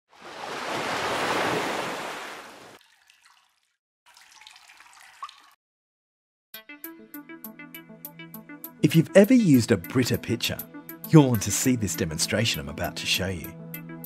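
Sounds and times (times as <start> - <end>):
water pouring and splashing: 0.1 - 5.6
water trickle: 2.7 - 5.6
water drip plop: 2.8 - 5.6.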